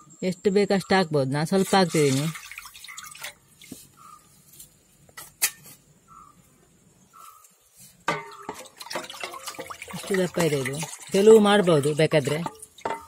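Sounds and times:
liquid pouring into steel bowl: 0:01.6 - 0:03.8, 0:08.1 - 0:13.0.

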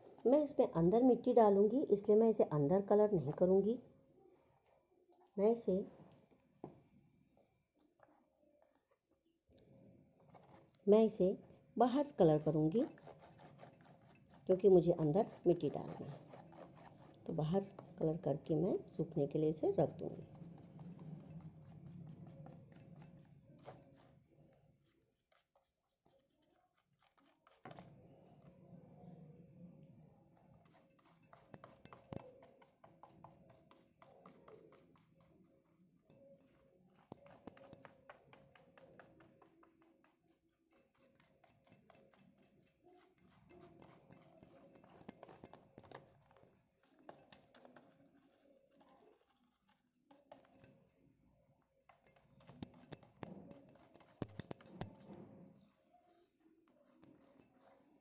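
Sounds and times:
paintbrush scratching on plastic: 0:00.0 - 0:04.8, 0:07.8 - 0:58.0.

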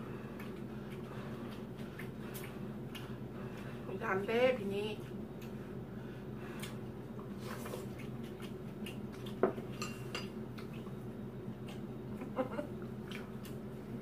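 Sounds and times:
low steady hum: 0:00.0 - 0:14.0
chopsticks clinking on dishes: 0:09.8 - 0:10.3.

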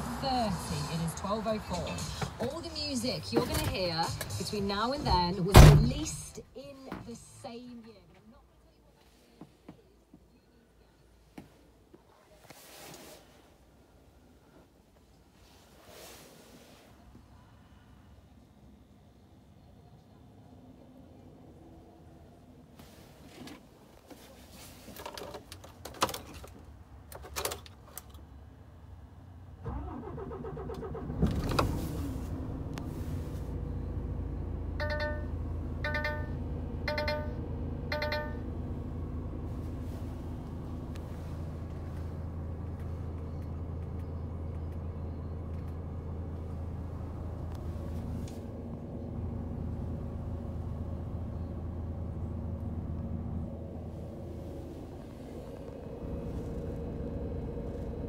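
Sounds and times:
diesel engine idling: 0:29.4 - 0:58.0
ignition clicks: 0:29.6 - 0:32.9
short warning beeps: 0:34.8 - 0:38.5.

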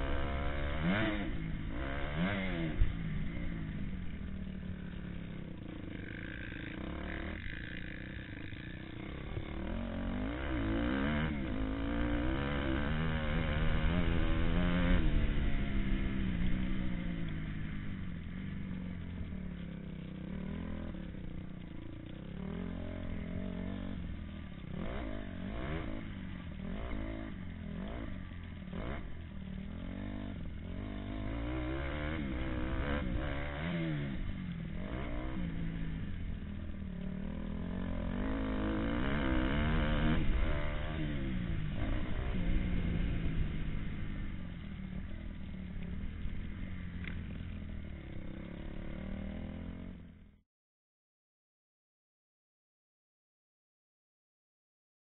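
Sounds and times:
motocross bike engine revving: 0:00.0 - 0:50.4.

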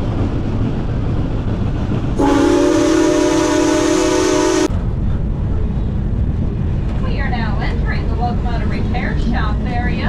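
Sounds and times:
steam locomotive whistle: 0:02.2 - 0:04.7
steady low rumble: 0:04.6 - 0:10.0.

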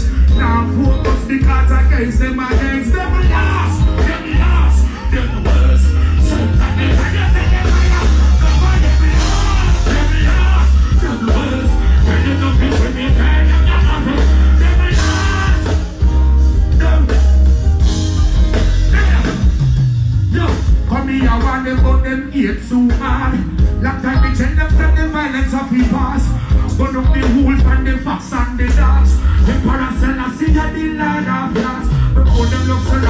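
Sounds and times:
person singing: 0:00.0 - 0:19.6, 0:20.3 - 0:33.0
heavy bass: 0:00.0 - 0:33.0
live band music: 0:00.0 - 0:33.0.

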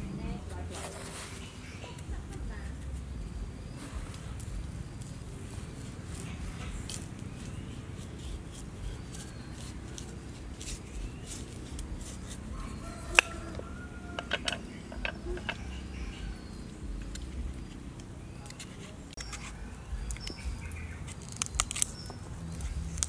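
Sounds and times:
chicken clucking: 0:12.4 - 0:16.6.

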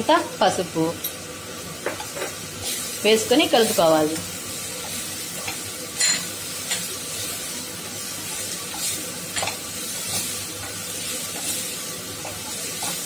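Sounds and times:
vegetables sizzling in a pan: 0:00.0 - 0:13.0.

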